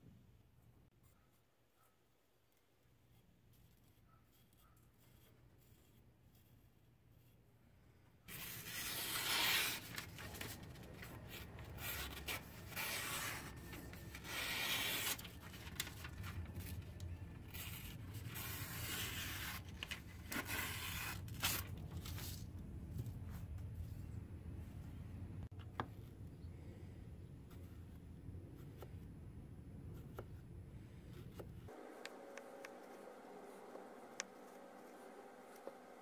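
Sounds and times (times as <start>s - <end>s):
knife slicing paper: 8.3s - 22.4s
paper rustling: 8.3s - 24.0s.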